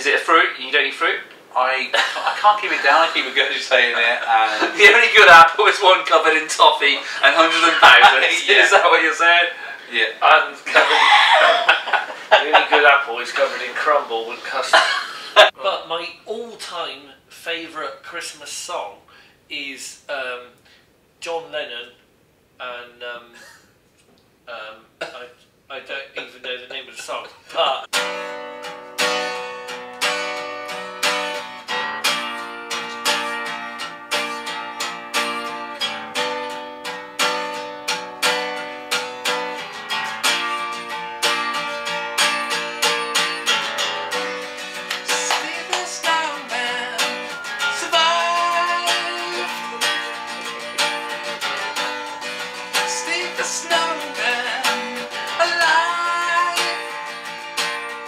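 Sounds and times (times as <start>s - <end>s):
acoustic guitar strumming: 1.9s - 9.9s, 27.0s - 58.0s
man singing: 45.0s - 51.6s, 52.7s - 57.1s.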